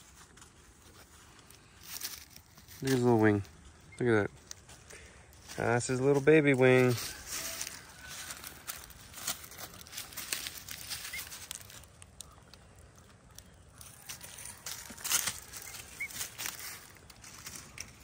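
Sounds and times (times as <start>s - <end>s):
dry leaves rustling and crackling: 0.0s - 18.0s.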